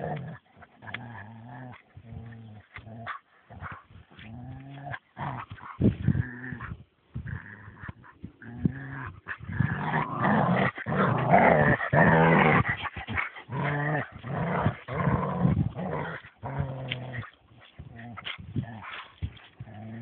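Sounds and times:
dog growling: 0:00.0 - 0:20.0.

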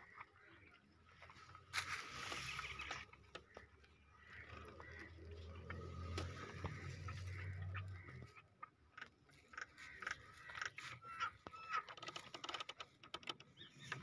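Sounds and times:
bird chirps: 0:02.1 - 0:08.8, 0:09.4 - 0:12.0, 0:13.4 - 0:14.0.

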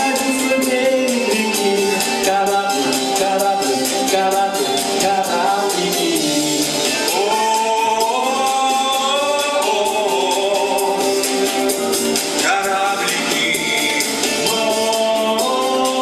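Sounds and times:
man singing into a microphone: 0:00.0 - 0:11.5, 0:12.4 - 0:16.0
pop backing track with drum beat: 0:00.0 - 0:16.0.

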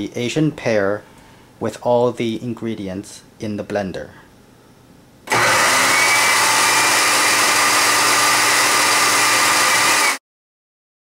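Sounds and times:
blender motor running: 0:05.3 - 0:10.2.

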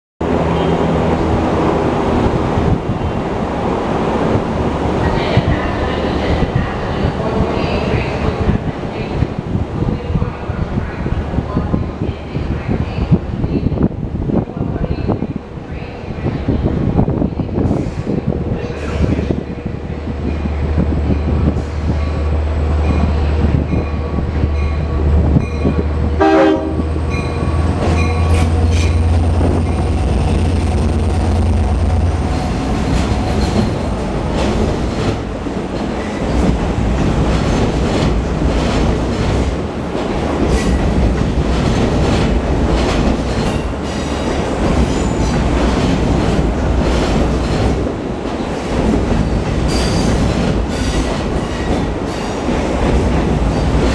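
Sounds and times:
locomotive rumble: 0:00.2 - 0:53.9
train horn blast: 0:26.2 - 0:27.5.

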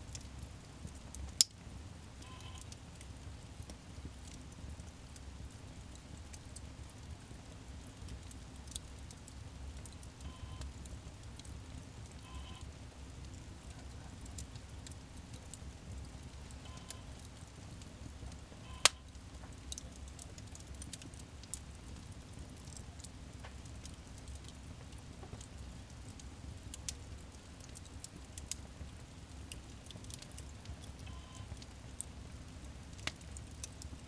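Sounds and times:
low steady rumble: 0:00.0 - 0:34.0
wood fire crackling: 0:00.0 - 0:34.0.

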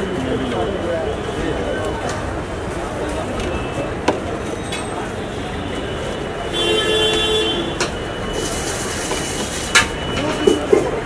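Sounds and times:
street traffic noise: 0:00.0 - 0:11.0
vehicle horn: 0:05.3 - 0:07.9.

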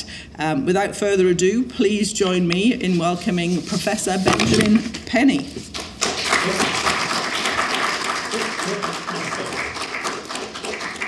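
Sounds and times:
audience applauding: 0:06.0 - 0:11.0.

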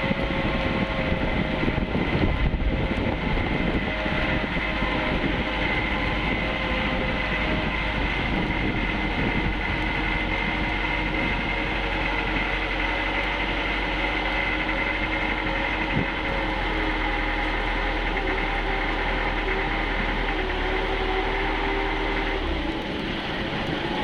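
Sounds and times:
motorboat engine running: 0:00.0 - 0:24.0.

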